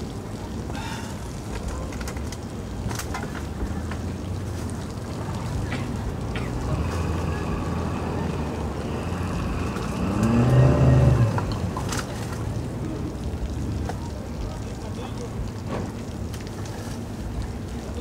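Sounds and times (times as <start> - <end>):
engine idling and revving: 5.6 - 12.4.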